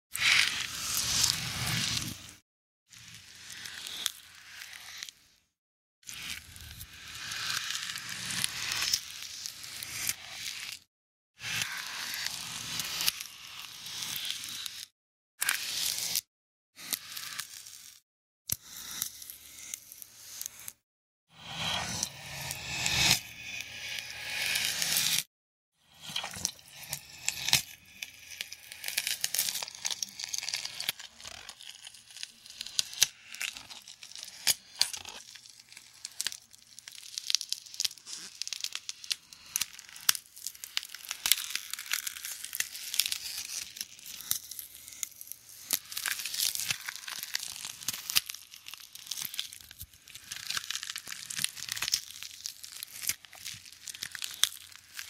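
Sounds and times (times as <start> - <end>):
crackling and crunching creature effect: 0.1 - 2.4, 25.9 - 55.0.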